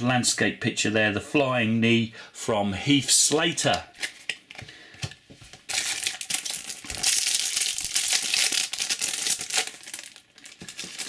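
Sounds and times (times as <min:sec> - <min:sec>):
foil pack crinkling: 0:05.5 - 0:11.0.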